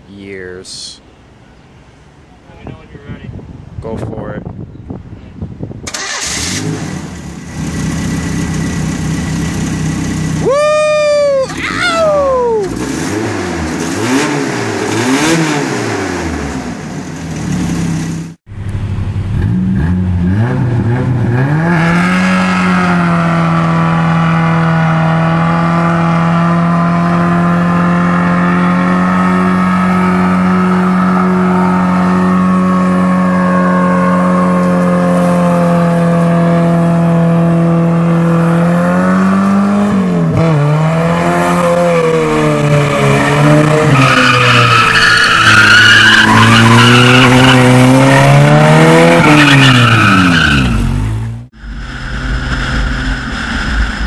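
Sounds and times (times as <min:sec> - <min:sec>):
pickup engine revving: 0:05.9 - 0:17.9, 0:18.7 - 0:54.0
wheels spinning in burnout: 0:20.3 - 0:36.2, 0:40.3 - 0:54.0.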